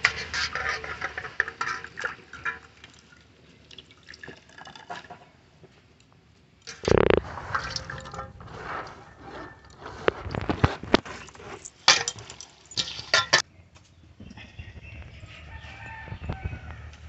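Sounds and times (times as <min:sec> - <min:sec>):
clinks against metal bowls: 0:11.9 - 0:13.4.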